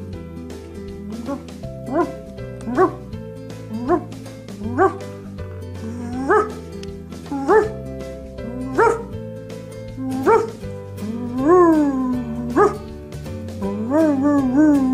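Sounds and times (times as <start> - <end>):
background music with held notes: 0.0 - 14.9
puppy yipping: 6.0 - 6.6, 7.3 - 7.8, 8.7 - 9.1.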